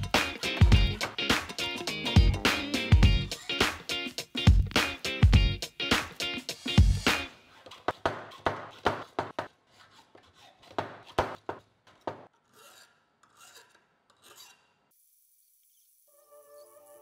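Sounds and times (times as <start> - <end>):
hacksaw cutting metal rod: 7.2 - 14.9.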